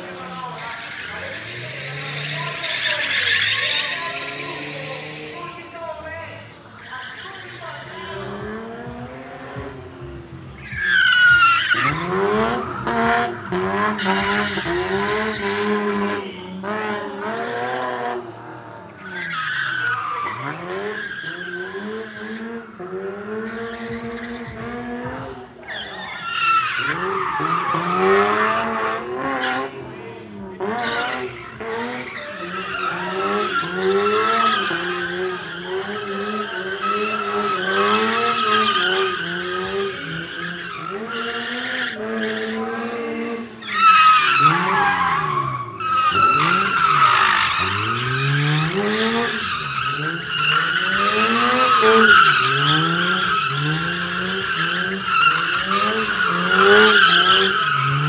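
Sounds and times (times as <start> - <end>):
tyres screeching on asphalt: 0.0 - 58.0
car engine revving hard: 11.4 - 19.2, 26.7 - 58.0.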